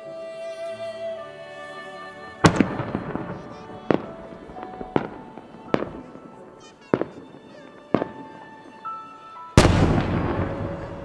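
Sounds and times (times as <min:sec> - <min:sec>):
faint music: 0:00.0 - 0:11.0
firework bangs: 0:02.4 - 0:08.9, 0:09.6 - 0:11.0
large firework boom: 0:09.6 - 0:11.0.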